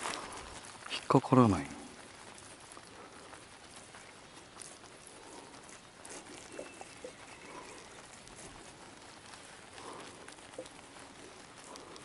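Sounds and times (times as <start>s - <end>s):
light ticks: 1.9s - 12.0s
faint thin whistle: 6.4s - 7.8s.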